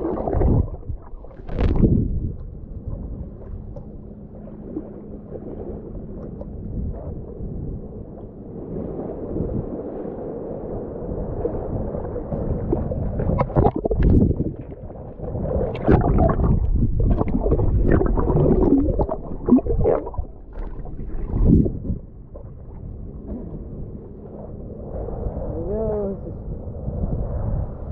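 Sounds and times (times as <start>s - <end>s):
muffled seawater sloshing: 0.0s - 27.9s
underwater splashes and gurgles: 0.0s - 27.9s.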